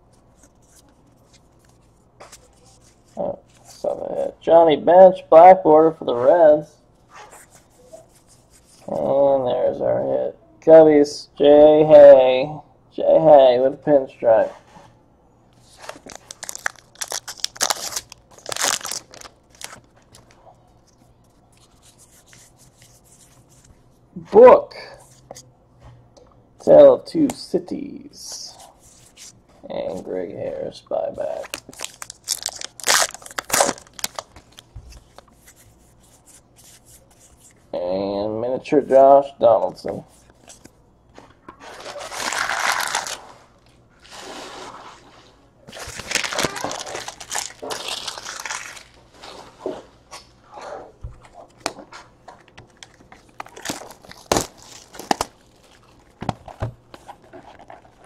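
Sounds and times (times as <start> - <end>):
card pack wrapper crinkling: 15.6 - 21.0, 31.2 - 35.6, 41.6 - 43.3, 45.7 - 49.0, 52.6 - 58.0.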